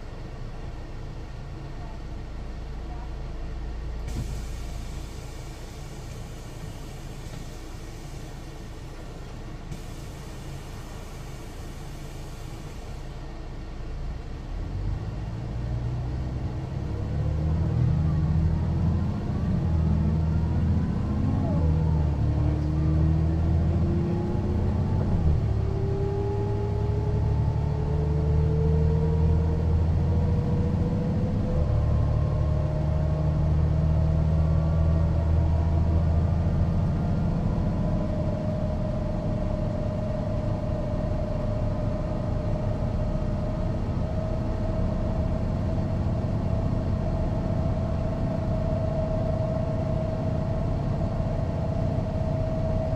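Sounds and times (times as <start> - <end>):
bus diesel engine drone: 0.0 - 52.9
whine rising in pitch: 18.3 - 52.9.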